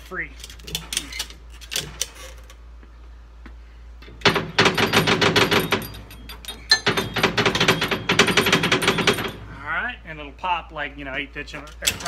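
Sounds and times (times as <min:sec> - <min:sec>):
metal clicks and rattling: 0:00.4 - 0:02.6, 0:04.0 - 0:09.5, 0:11.5 - 0:12.0
sharp metallic knocks: 0:04.2 - 0:09.5.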